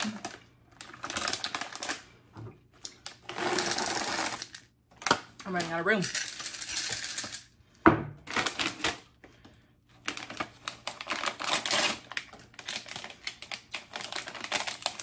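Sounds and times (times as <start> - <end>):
candies clattering into jar: 2.8 - 7.5.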